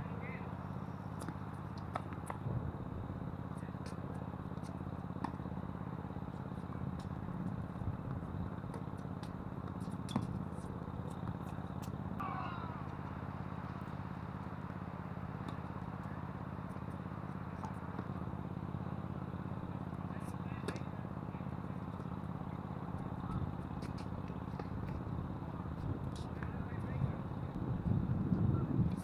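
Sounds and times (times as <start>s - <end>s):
tennis balls struck by rackets: 1.1s - 2.5s, 3.3s - 5.6s, 6.2s - 18.5s, 19.3s - 26.6s
wind buffeting microphone: 25.8s - 29.0s.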